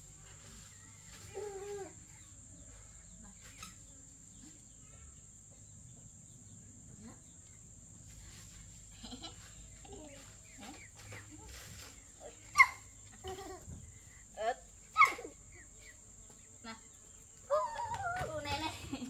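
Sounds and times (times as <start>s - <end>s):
high-pitched insect buzz: 8.1s - 19.0s.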